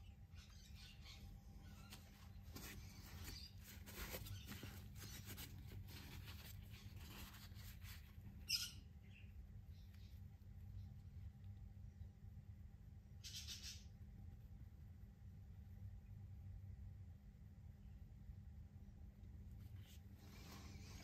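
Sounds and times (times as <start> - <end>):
low steady hum: 0.0 - 21.0
rustling and scraping: 1.6 - 8.4, 19.5 - 21.0.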